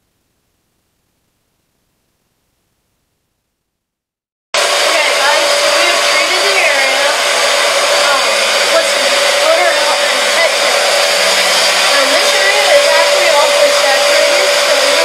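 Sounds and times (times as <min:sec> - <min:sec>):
carpet extractor vacuum motor whine: 0:04.6 - 0:15.0.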